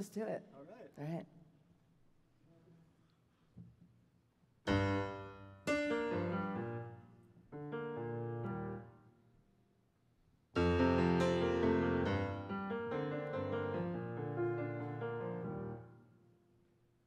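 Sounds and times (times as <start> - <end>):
grand piano chords: 4.7 - 9.2, 10.6 - 16.3.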